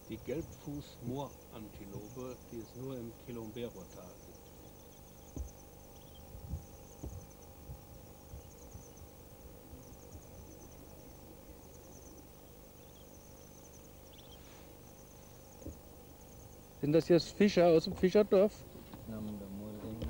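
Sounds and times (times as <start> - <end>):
high-pitched insect trilling: 0.0 - 18.5.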